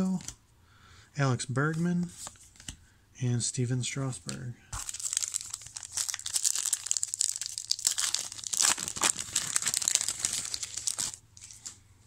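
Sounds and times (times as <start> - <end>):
foil wrapper crinkling and tearing: 4.8 - 11.8.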